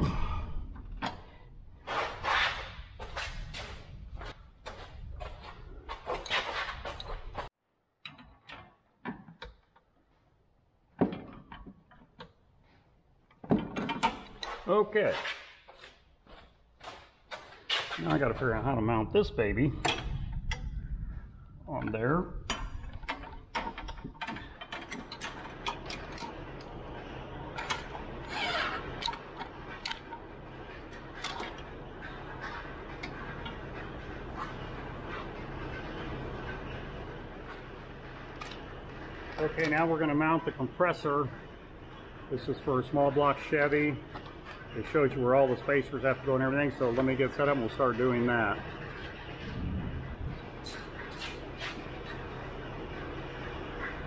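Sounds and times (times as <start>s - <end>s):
short rushing scrape: 1.8s - 4.0s.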